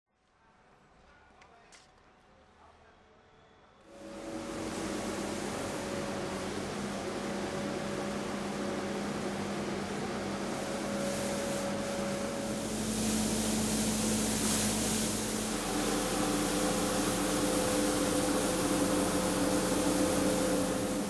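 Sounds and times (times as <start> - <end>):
street sweeper engine hum: 3.9 - 21.0
rotating brushes hissing on paving: 4.2 - 21.0.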